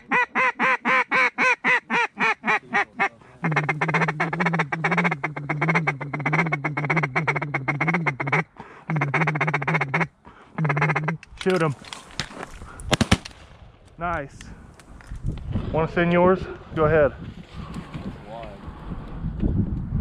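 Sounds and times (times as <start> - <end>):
duck call feeding chatter: 0.0 - 11.2
duck call quacks: 0.0 - 11.2.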